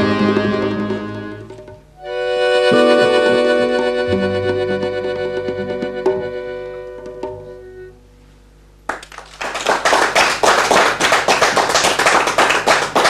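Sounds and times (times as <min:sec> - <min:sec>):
plucked notes: 0:00.0 - 0:08.0
accordion chord: 0:00.0 - 0:08.3
audience clapping: 0:08.9 - 0:13.0.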